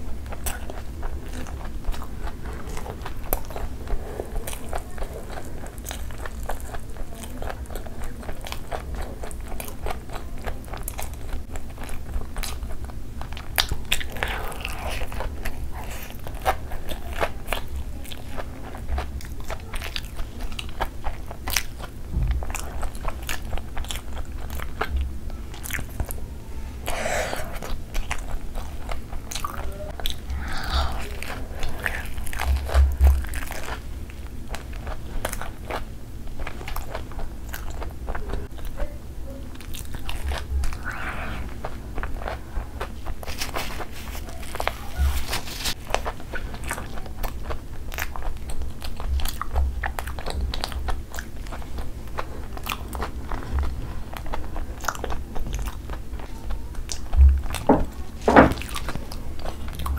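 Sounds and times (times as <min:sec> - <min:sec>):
crisp chewing crunches: 0:00.0 - 0:59.9.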